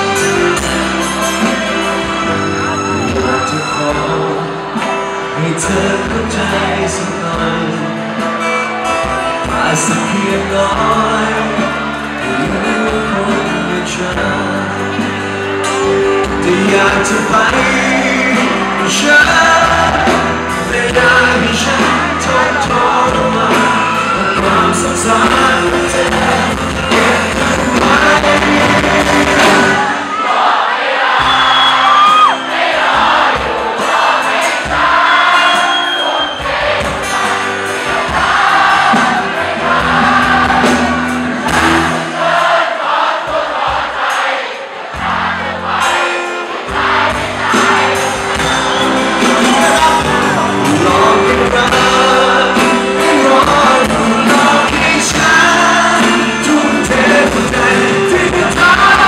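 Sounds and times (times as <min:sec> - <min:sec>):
man singing: 0:00.0 - 0:08.3, 0:09.2 - 0:30.1, 0:48.6 - 0:59.0
live band playing: 0:00.0 - 0:59.0
audience shouting and whooping: 0:28.4 - 0:42.4, 0:44.9 - 0:51.5.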